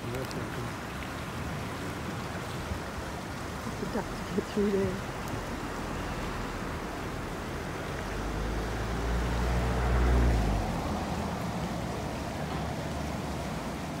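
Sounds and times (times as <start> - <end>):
river water rushing: 0.0 - 14.0
vehicle engine rumble passing: 3.6 - 14.0.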